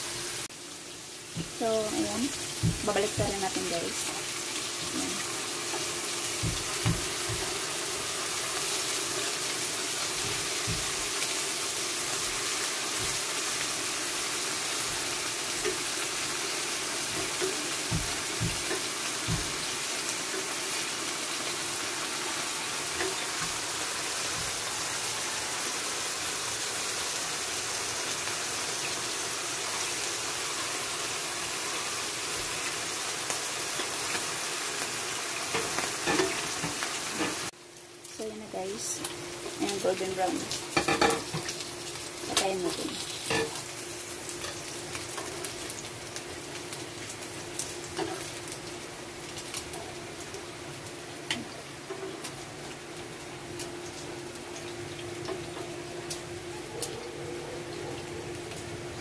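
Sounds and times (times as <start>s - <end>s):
meat sizzling in hot oil: 0.0s - 59.0s.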